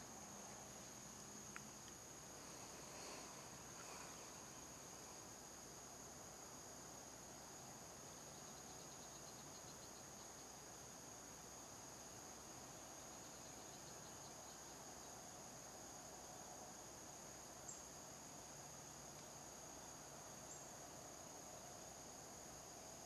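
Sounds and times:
insect chorus trilling: 0:00.0 - 0:23.0.

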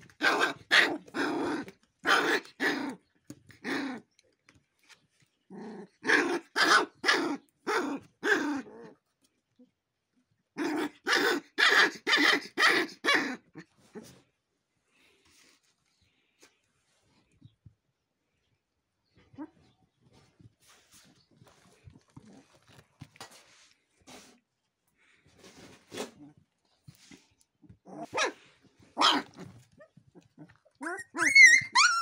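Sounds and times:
puppies growling and yapping: 0:05.4 - 0:09.1, 0:29.1 - 0:32.0.

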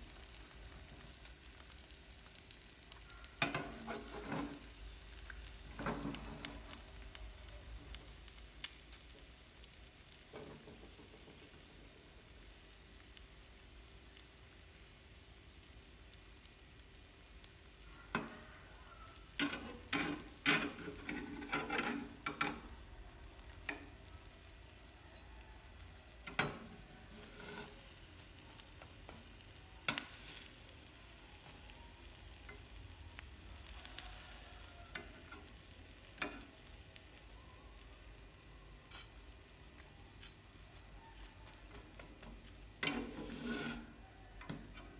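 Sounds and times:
omelette sizzling in a frying pan: 0:00.0 - 0:44.9
spatula and chopsticks scraping pan: 0:03.4 - 0:06.8, 0:19.4 - 0:22.8, 0:26.3 - 0:28.4, 0:38.9 - 0:39.2, 0:42.3 - 0:44.9.

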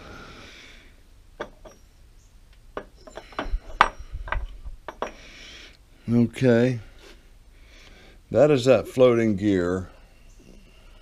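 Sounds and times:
metal parts clinking and knocking: 0:01.4 - 0:01.9, 0:02.8 - 0:05.2.

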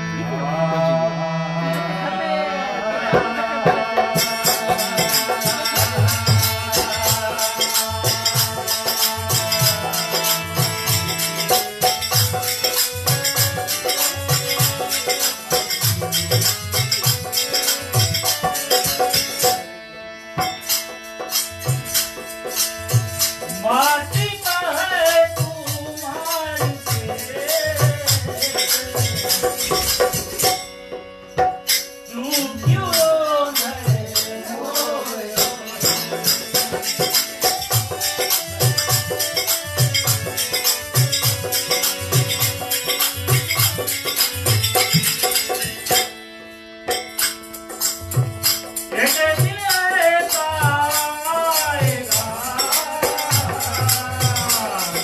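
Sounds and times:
man singing: 0:00.0 - 0:19.6, 0:23.4 - 0:30.6, 0:32.1 - 0:44.2, 0:48.9 - 0:55.0
harmonium chords: 0:00.0 - 0:55.0
hand drum beat: 0:03.7 - 0:19.6, 0:25.3 - 0:30.6, 0:34.8 - 0:46.2, 0:47.2 - 0:55.0.

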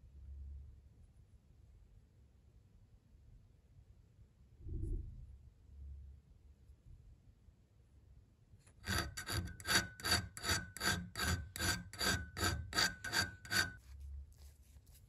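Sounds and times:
hand file on iron: 0:08.7 - 0:15.0.

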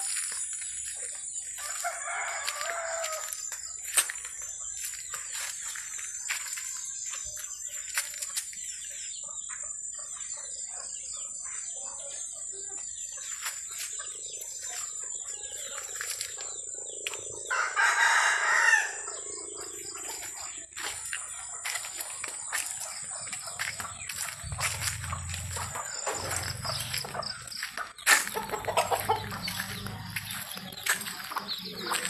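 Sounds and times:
chickens clucking: 0:00.0 - 0:32.0
small birds chirping: 0:00.0 - 0:32.0
rooster crowing: 0:01.6 - 0:03.4, 0:17.5 - 0:19.2.

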